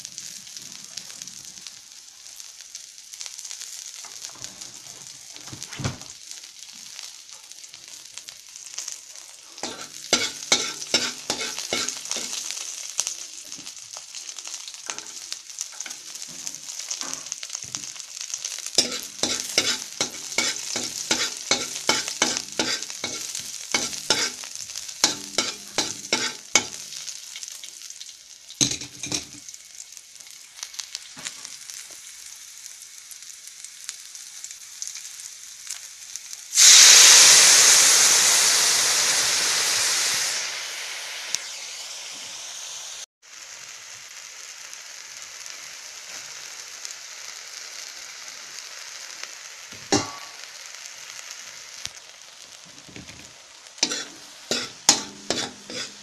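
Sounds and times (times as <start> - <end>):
food sizzling in oil: 0.0 - 56.0
liquid sizzling in a hot pan: 0.0 - 56.0
metal ladle scraping a wok: 9.6 - 12.5, 18.8 - 27.0, 53.8 - 56.0.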